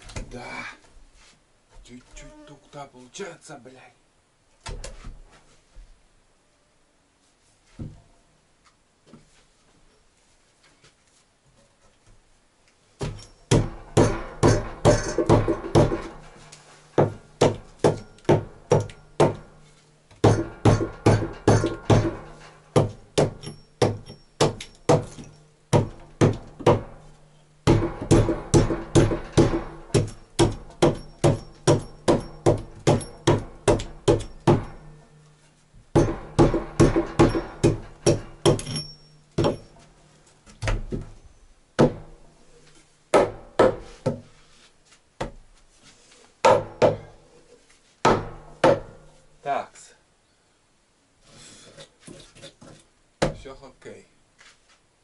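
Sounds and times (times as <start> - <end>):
hammer striking wood: 13.0 - 16.4, 17.0 - 35.0, 35.9 - 39.8, 41.8 - 42.2, 43.1 - 44.3, 46.4 - 47.2, 48.0 - 49.0.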